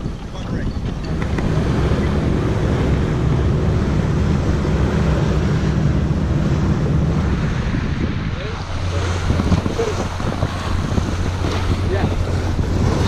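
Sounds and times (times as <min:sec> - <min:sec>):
water rushing past hull: 0:00.0 - 0:13.0
wind buffeting microphone: 0:00.0 - 0:13.0.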